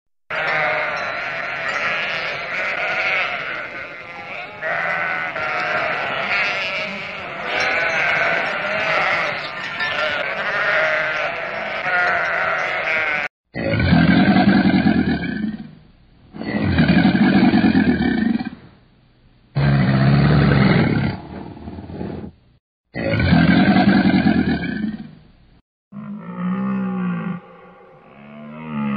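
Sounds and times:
sheep and lambs bleating: 0.3s - 13.3s
crocodile deep growling calls: 12.9s - 15.7s, 25.9s - 28.9s.

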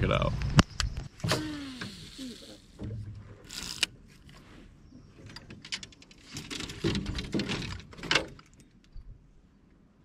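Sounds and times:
fishing reel clicking and whirring: 3.5s - 3.9s.

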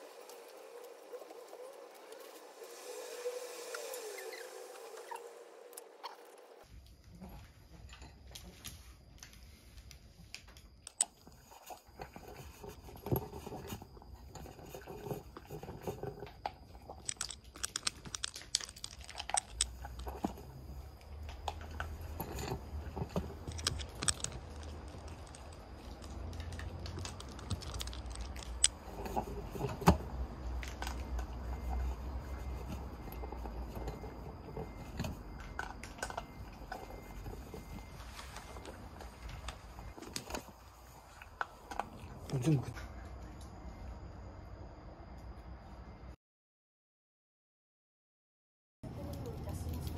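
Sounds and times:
dog crunching kibble: 14.5s - 31.6s.

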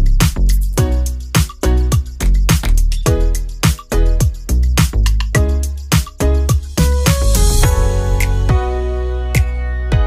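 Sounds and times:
music with steady beat: 0.0s - 10.0s.

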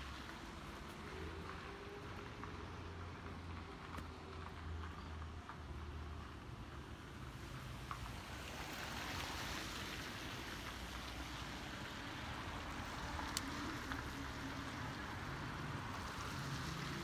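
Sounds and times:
car tyres hissing on wet asphalt: 6.9s - 17.0s.

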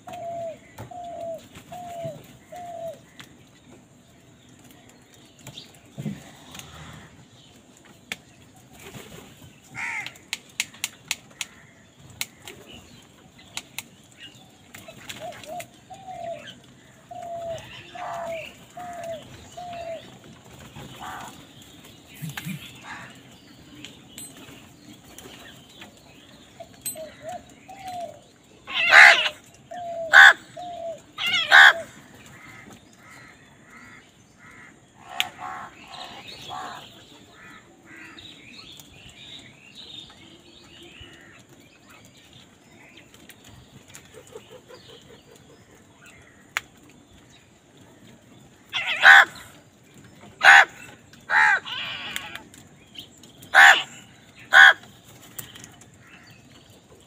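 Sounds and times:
crows calling: 9.7s - 10.7s, 11.3s - 12.5s, 15.5s - 20.0s, 20.9s - 21.4s, 22.4s - 23.3s, 26.9s - 38.5s, 48.6s - 49.6s, 50.4s - 52.6s, 53.5s - 55.0s
harsh crow caws: 9.8s - 10.2s, 32.4s - 36.8s, 50.4s - 52.4s, 53.6s - 54.8s.

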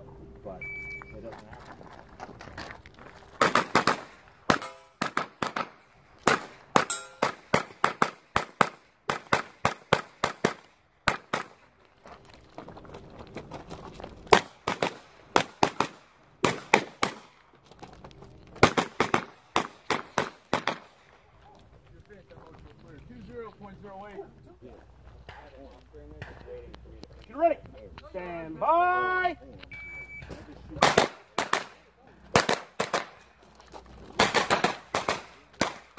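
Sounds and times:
carbine gunshots: 3.4s - 11.6s, 14.3s - 17.4s, 18.6s - 21.0s, 30.8s - 33.2s, 34.2s - 35.9s.

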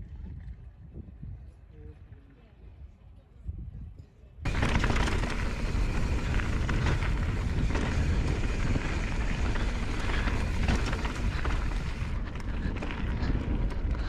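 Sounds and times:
wind buffeting microphone: 0.0s - 14.0s
bike tyres crunching on gravel: 4.5s - 14.0s.

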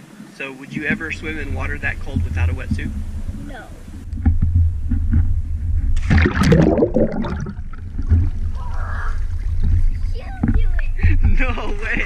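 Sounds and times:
water churning and sloshing: 0.0s - 12.0s
steady low rumble: 0.6s - 12.0s
splash into swimming pool: 6.0s - 7.3s.

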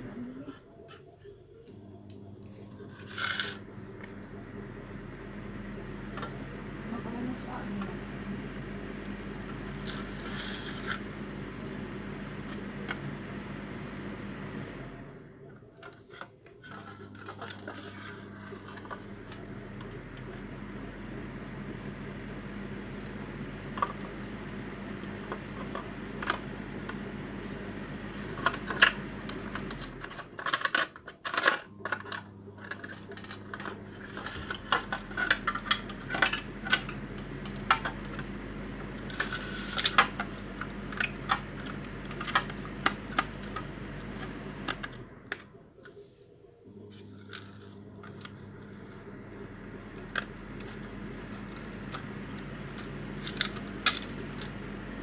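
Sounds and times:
steady low hum: 0.0s - 55.0s
plastic parts clattering: 2.9s - 3.6s, 15.7s - 19.4s, 29.6s - 38.0s, 51.4s - 54.5s.

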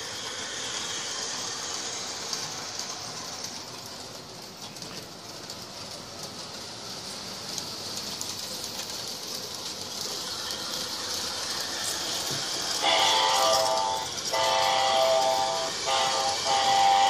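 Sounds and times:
model train clattering on track: 0.0s - 17.0s
train horn chord: 12.8s - 17.0s.

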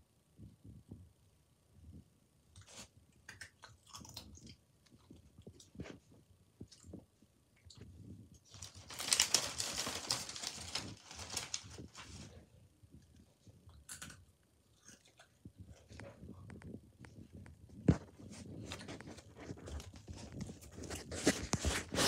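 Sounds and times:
rustling: 7.8s - 13.3s, 15.6s - 22.0s.

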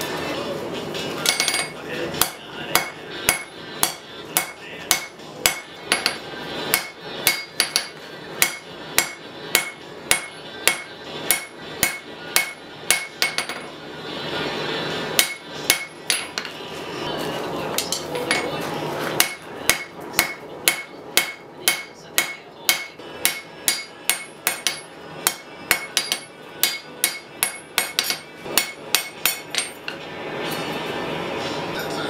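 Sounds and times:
hammer striking metal on anvil: 1.2s - 13.8s, 15.1s - 16.6s, 19.2s - 30.0s.

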